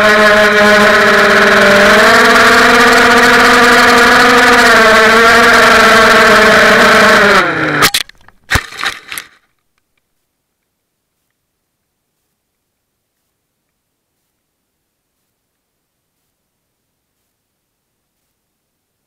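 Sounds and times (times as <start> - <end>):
quadcopter motors whining: 0.0 - 7.9
quadcopter crashing into grass: 7.8 - 9.4.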